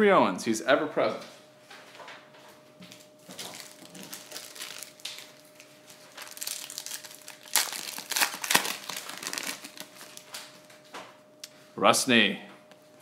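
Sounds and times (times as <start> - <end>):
card pack wrapper crinkling and tearing: 3.3 - 10.5.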